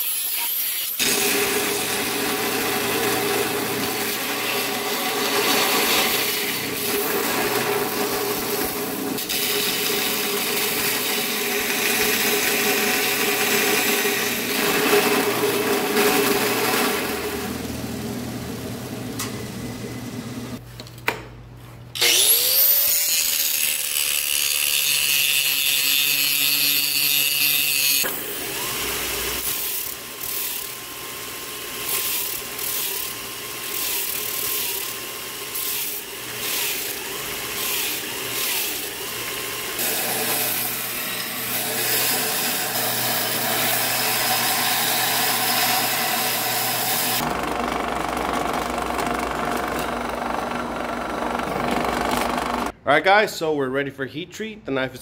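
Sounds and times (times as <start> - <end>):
belt grinder motor whine: 22.0 - 22.9, 43.8 - 52.7
drill press drilling steel: 41.5 - 52.7.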